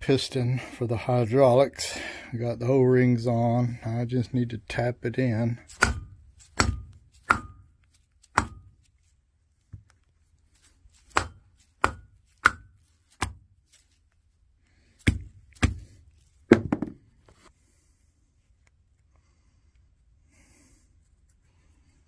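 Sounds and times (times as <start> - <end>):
mallet tapping metal piston: 5.7 - 7.7.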